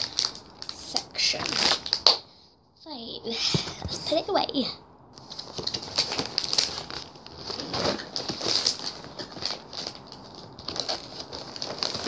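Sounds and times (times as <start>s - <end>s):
plastic wrapping crinkling: 0.0s - 2.2s, 5.2s - 12.0s
cardboard box rustling: 5.2s - 12.0s.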